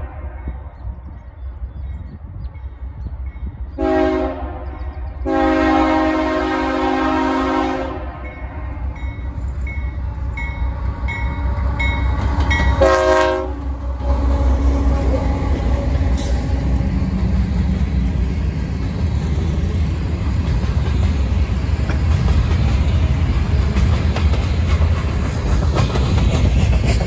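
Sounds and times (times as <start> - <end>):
train horn blast: 0.0 - 0.8, 3.8 - 9.0, 12.8 - 16.8
locomotive engine rumble: 0.0 - 27.0
locomotive bell ringing: 8.2 - 13.0.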